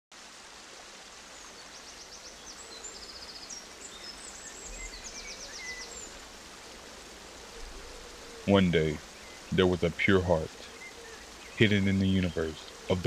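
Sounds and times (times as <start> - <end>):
steady hiss: 0.1 - 13.0
small birds chirping: 1.1 - 13.0.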